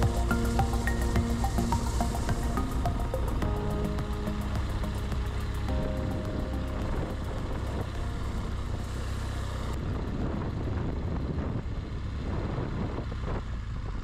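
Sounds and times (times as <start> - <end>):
high hiss: 0.0 - 9.8
vehicle engine and road noise: 0.0 - 14.0.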